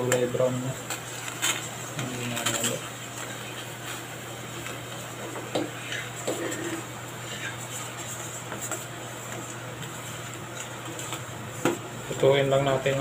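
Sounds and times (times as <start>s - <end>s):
metal spoon stirring and scraping: 5.8s - 11.2s.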